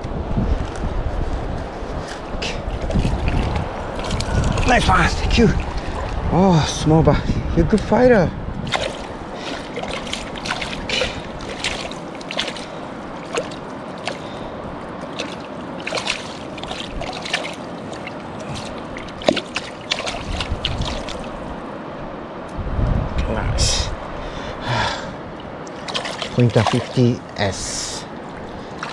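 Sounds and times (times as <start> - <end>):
river water flowing: 1.5 - 7.6, 8.4 - 22.6, 23.7 - 28.9
small water splashes and trickles: 2.0 - 6.9, 8.6 - 21.8, 25.3 - 28.9.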